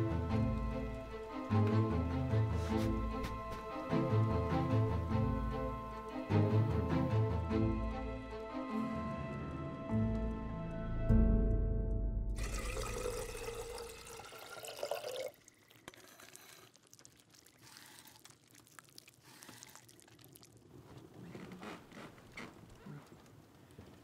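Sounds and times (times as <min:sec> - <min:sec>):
liquid pouring: 0:12.4 - 0:20.9
dribbling and small splashes: 0:12.4 - 0:23.3.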